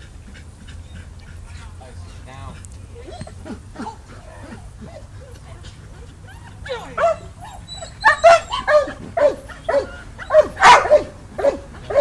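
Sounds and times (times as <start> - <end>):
dog barking and yelping: 3.0 - 12.0.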